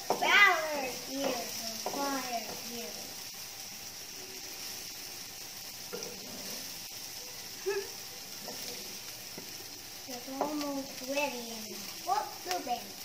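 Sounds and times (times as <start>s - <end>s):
onion and garlic sizzling: 0.0s - 13.0s.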